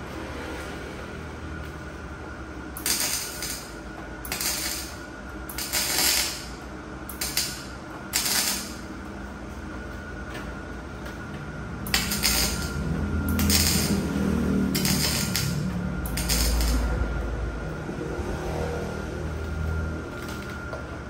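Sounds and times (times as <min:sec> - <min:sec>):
steady low hum: 0:00.0 - 0:21.0
welding bursts hissing: 0:02.8 - 0:06.5, 0:07.1 - 0:08.8, 0:11.9 - 0:12.7, 0:13.3 - 0:14.0, 0:14.7 - 0:16.8.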